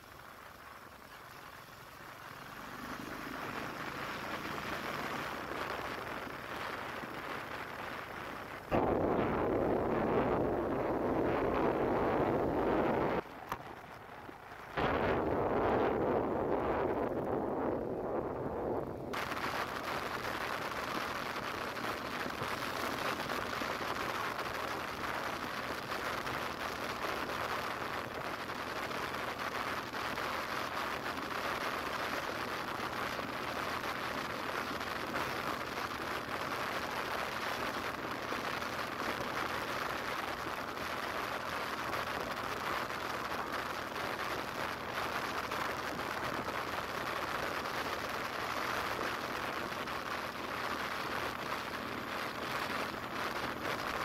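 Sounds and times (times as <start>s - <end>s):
wind and road noise hiss: 0.0s - 54.0s
faint low hum: 8.6s - 25.4s.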